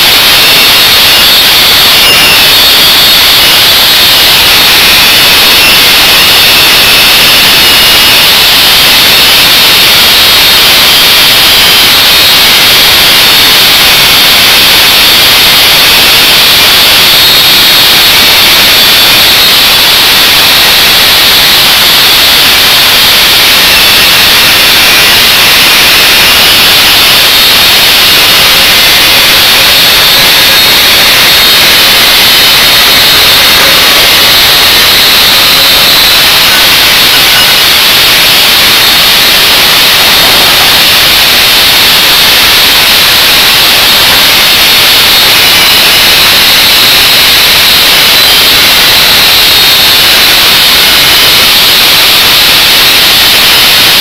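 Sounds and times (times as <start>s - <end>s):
angle grinder cutting steel: 31.8s - 44.7s.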